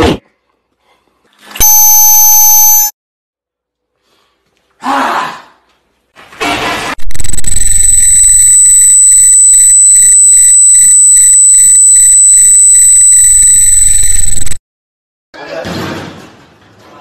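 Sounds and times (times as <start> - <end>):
distorted electronic ringing: 1.6 - 2.9, 7.0 - 14.6.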